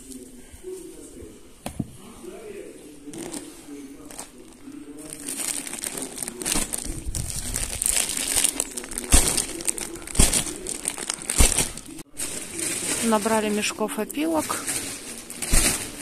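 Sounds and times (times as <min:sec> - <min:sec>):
plastic sack crinkling: 0:03.0 - 0:16.0
dull thumps: 0:06.5 - 0:11.9, 0:14.6 - 0:16.0.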